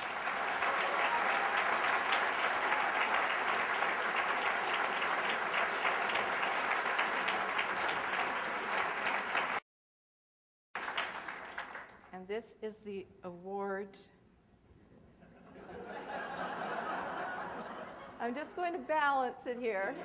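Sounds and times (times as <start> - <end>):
audience applauding: 0.0 - 9.6, 10.8 - 12.0.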